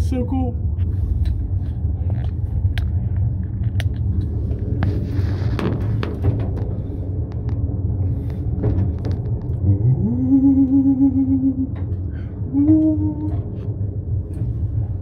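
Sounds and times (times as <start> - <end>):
elevator rumbling: 0.0 - 15.0
elevator tone: 9.8 - 15.0.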